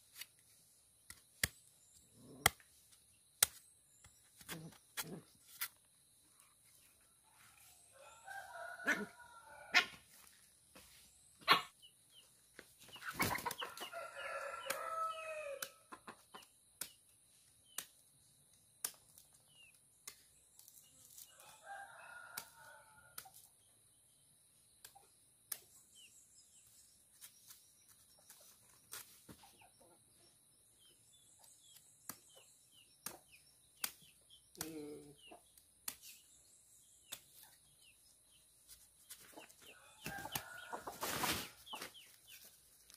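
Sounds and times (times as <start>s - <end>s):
machete chopping: 3.4s - 3.6s
chickens clucking: 12.8s - 13.9s, 15.9s - 16.5s, 39.1s - 42.5s
rooster crowing: 13.7s - 15.8s.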